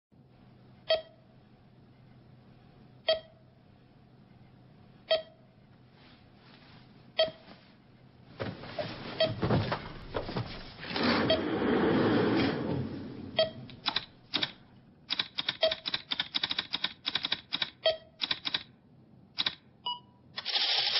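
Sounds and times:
noisy movement sounds: 5.7 - 14.6
computer alarm beeping: 13.4 - 13.7.

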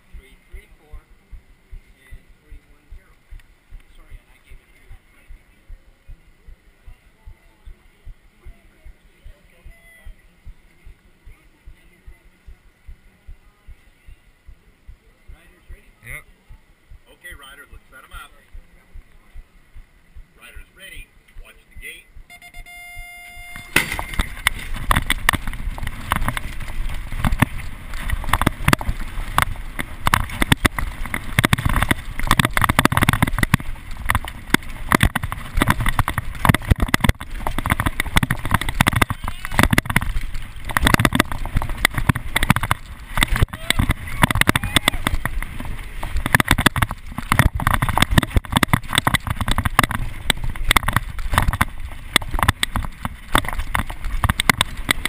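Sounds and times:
tyre noise on dirt: 23.4 - 55.0
bike knocking over bumps: 23.6 - 55.0
mountain bike rattling: 23.7 - 55.0.

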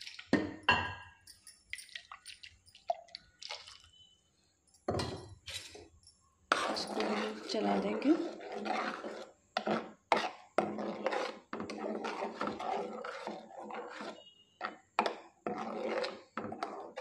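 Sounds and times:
ladle scraping a frying pan: 6.5 - 17.0.

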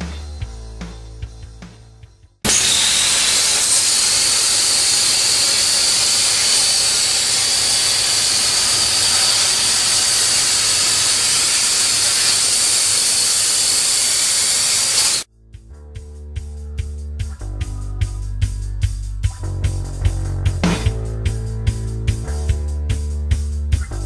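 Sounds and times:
music with drums: 0.0 - 2.5, 16.0 - 24.0
plasma torch cutting steel: 2.5 - 15.3.

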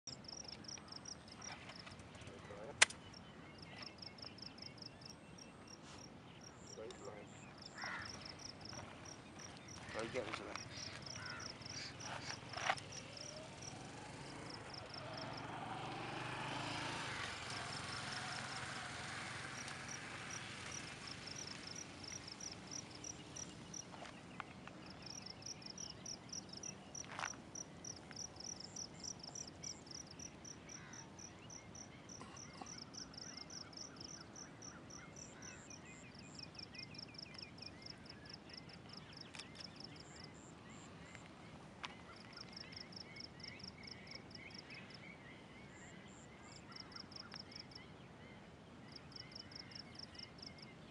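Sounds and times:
insects chirping: 3.1 - 41.3.

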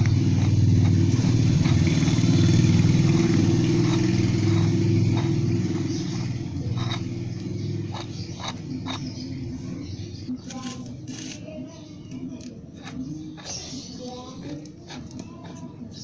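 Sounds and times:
electric drill motor droning: 0.0 - 9.0.

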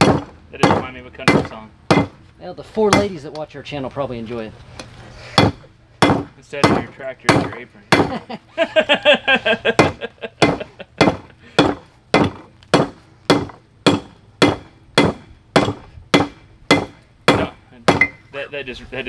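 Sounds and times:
hammer striking steel on anvil: 5.4 - 8.1, 9.8 - 18.3.

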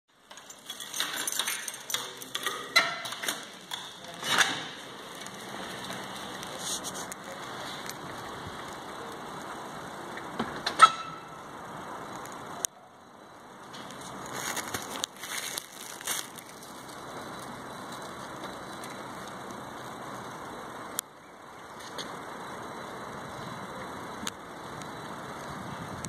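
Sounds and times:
outdoor background noise: 0.1 - 26.0
door opening: 0.3 - 6.6.

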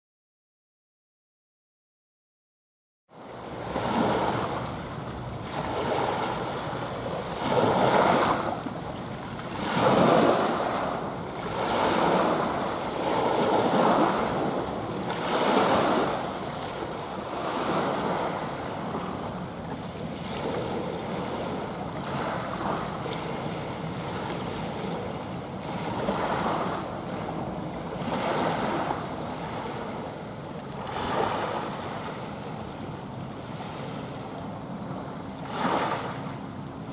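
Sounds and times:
sea waves washing in: 3.1 - 36.9.

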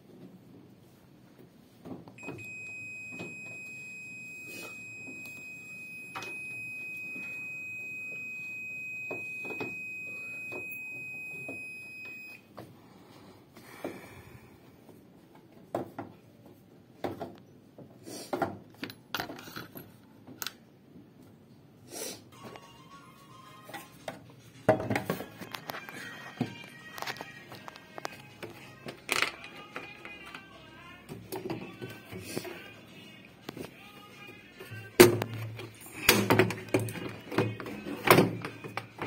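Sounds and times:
washing machine long beep: 2.2 - 12.5.

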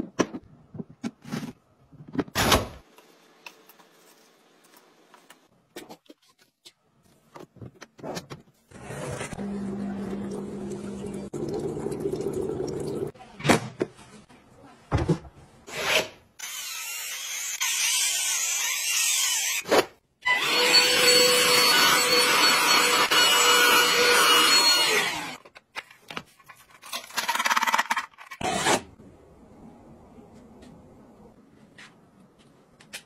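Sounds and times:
cleaning appliance whine: 20.3 - 25.4.

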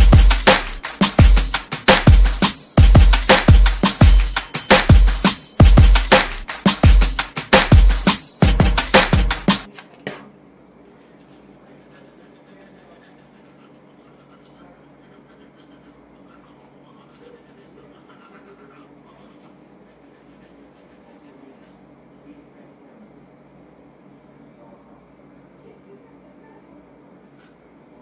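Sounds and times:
loud music with heavy beat: 0.0 - 9.7
toothbrush scrubbing teeth: 11.0 - 21.8.

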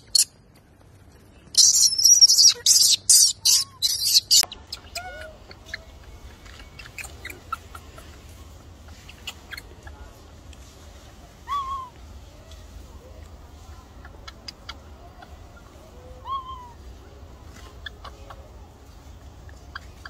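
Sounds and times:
macaque coo calls: 1.6 - 10.3, 11.4 - 12.0, 13.8 - 17.0
faint scattered clicks: 4.4 - 11.0.

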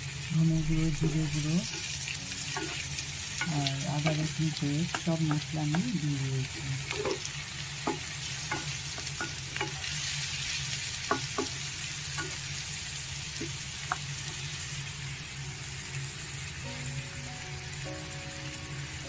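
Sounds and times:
potatoes sizzling in hot oil: 0.0 - 19.0
background music: 0.3 - 6.8, 16.6 - 19.0
spatula scraping and tapping pan: 6.9 - 10.0, 11.0 - 12.5.

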